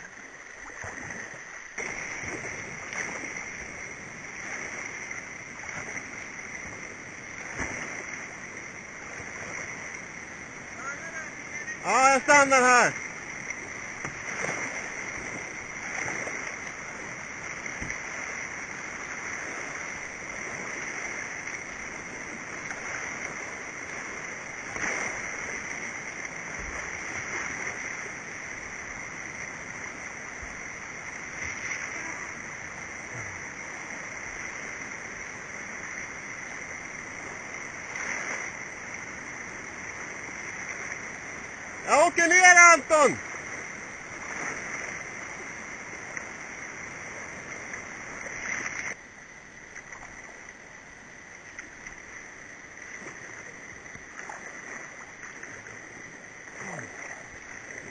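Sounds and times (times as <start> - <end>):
whitewater rapids rushing: 1.7 - 43.4.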